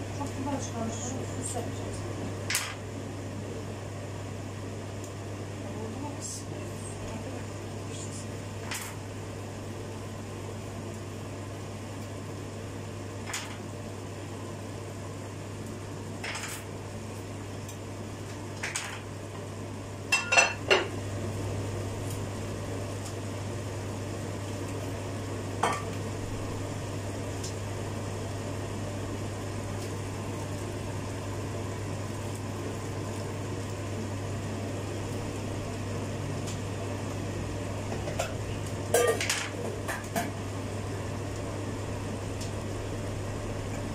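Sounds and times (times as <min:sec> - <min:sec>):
steady low hum: 0:00.0 - 0:43.9
dishes clattering: 0:39.0 - 0:40.3.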